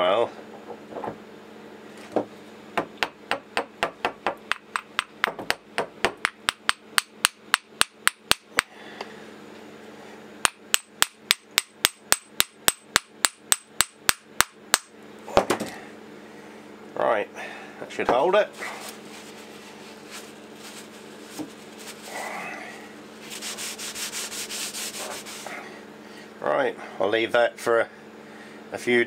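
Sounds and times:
hammer tapping on metal: 2.8s - 8.7s, 10.4s - 14.9s.

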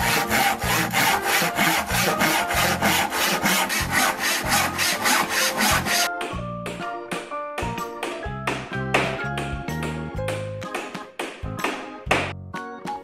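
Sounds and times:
hand saw cutting wood: 0.0s - 6.1s.

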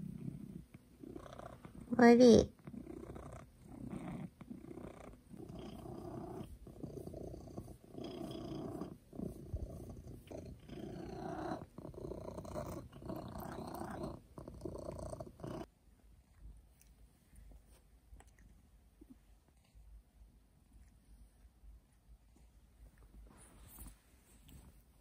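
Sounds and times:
cat purring: 0.0s - 25.0s.

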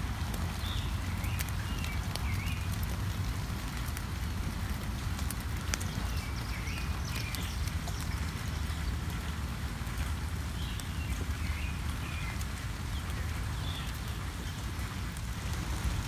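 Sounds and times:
rain dripping on leaves: 0.0s - 16.0s.

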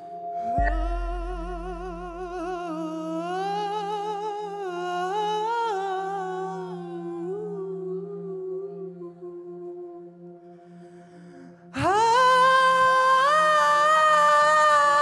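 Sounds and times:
low backing drone: 0.0s - 14.0s
deep bass boom: 0.6s - 2.6s
man singing with vibrato: 0.6s - 8.2s, 11.8s - 15.0s.

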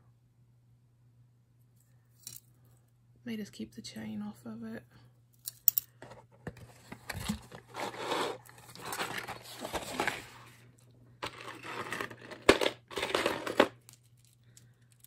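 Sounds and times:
rummaging in cardboard box: 6.0s - 10.6s, 11.2s - 13.8s.

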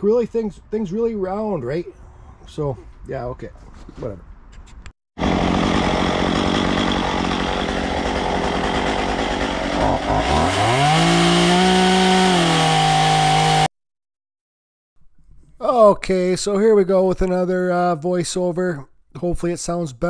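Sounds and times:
chainsaw cutting wood: 5.2s - 13.7s.

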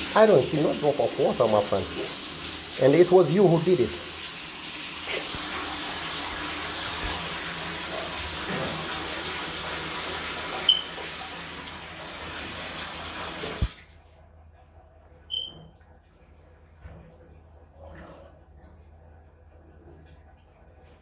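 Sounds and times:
water running from a tap: 0.0s - 14.0s, 15.3s - 15.6s
short high beep: 10.7s - 10.9s, 15.3s - 15.6s.

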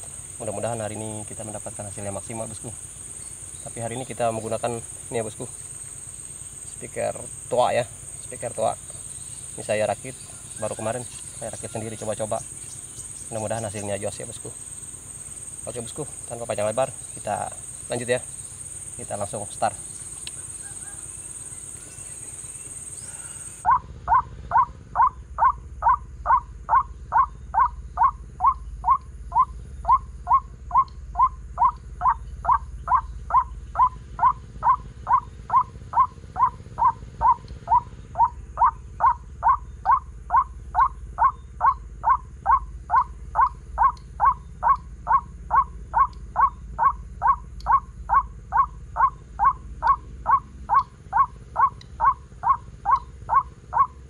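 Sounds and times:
crickets buzzing: 0.0s - 54.0s
bird call through loudspeaker: 9.6s - 14.6s, 20.4s - 54.0s.

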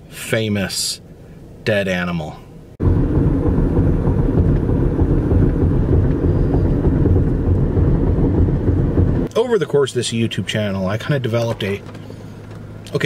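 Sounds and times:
car road and wind noise: 2.7s - 9.3s, 10.5s - 13.0s.

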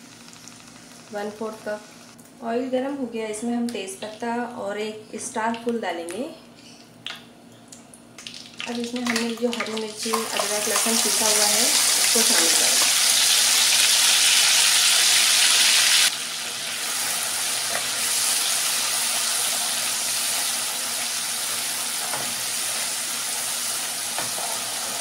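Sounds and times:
paste sizzling in hot oil: 10.0s - 25.0s.

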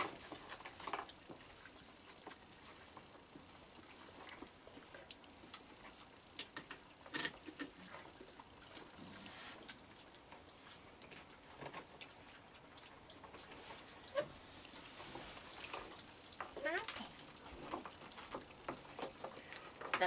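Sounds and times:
raccoons crunching kibble: 0.0s - 20.0s.

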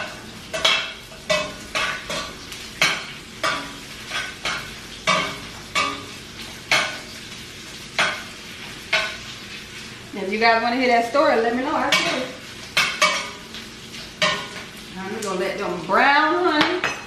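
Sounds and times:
metal utensil scraping skillet: 0.0s - 7.2s, 11.7s - 13.6s, 14.2s - 14.8s
faint frying sizzle: 0.0s - 17.0s.

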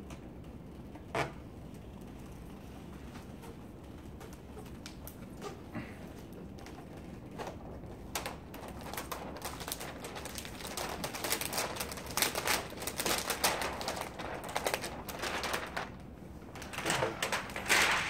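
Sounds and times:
plastic liner crinkling and crackling: 0.0s - 18.0s.

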